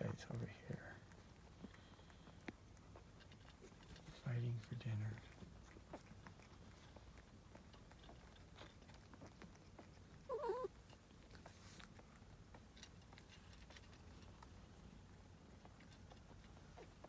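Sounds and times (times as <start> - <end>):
faint clicks and rustles: 0.0 - 17.0
kitten mewing: 10.3 - 10.8.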